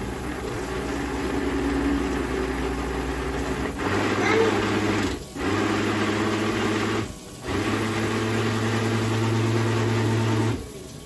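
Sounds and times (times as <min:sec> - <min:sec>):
blender motor humming: 0:00.0 - 0:10.8
person talking: 0:04.1 - 0:04.8.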